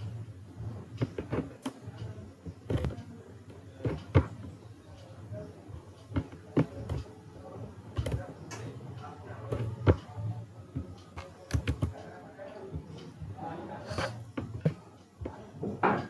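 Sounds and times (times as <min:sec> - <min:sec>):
computer mouse and keyboard clicks: 0:10.9 - 0:12.1.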